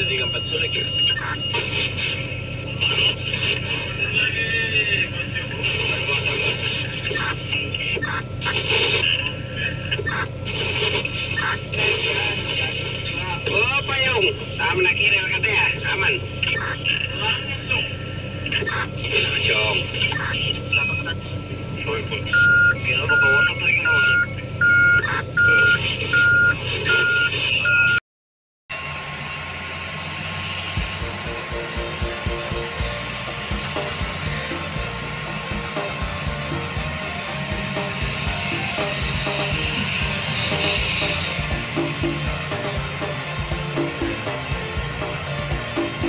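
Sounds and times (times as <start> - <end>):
back-up alarm beeping: 0.0 - 3.3, 20.0 - 28.0
diesel engines humming: 0.0 - 27.8, 28.7 - 46.0
background music: 30.8 - 46.0.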